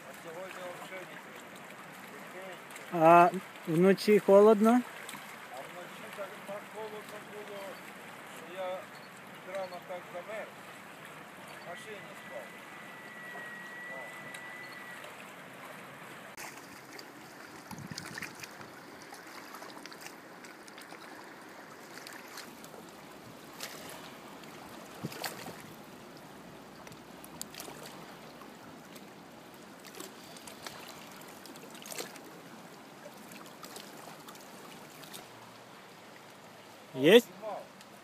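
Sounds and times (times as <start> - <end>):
river water lapping and sloshing: 0.0 - 38.0
sharp water slaps: 4.8 - 5.4.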